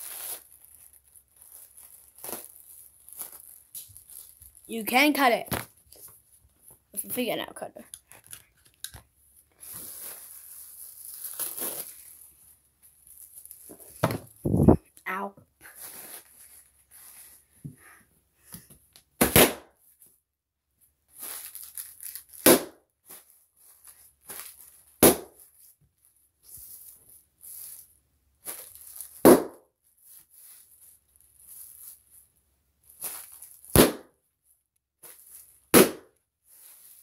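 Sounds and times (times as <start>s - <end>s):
bubble wrap popping: 0.0s - 5.8s, 9.6s - 14.8s, 21.2s - 25.5s, 28.4s - 29.6s, 32.9s - 34.1s, 35.0s - 37.0s
plastic crinkling: 0.0s - 6.3s, 7.9s - 14.4s, 21.1s - 22.4s, 23.1s - 25.6s, 26.5s - 29.2s, 30.0s - 32.2s, 32.8s - 33.7s.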